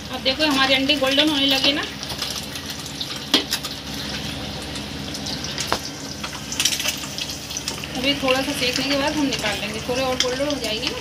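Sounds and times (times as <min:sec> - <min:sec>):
eggs sizzling in hot oil: 0:00.0 - 0:11.0.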